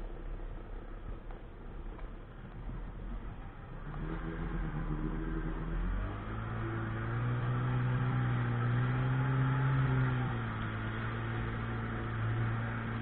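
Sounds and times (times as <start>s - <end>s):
personal watercraft engine: 1.5s - 13.0s.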